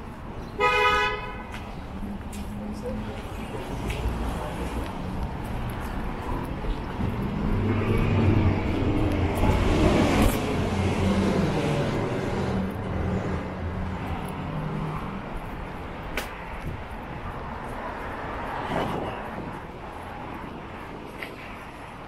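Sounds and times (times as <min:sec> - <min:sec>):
outdoor traffic noise: 0:00.0 - 0:22.0
vehicle engine passing by: 0:07.0 - 0:15.2.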